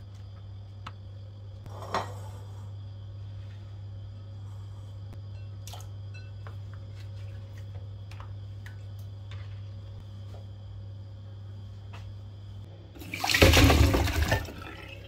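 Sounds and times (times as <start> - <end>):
steady low hum: 0.0 - 13.2.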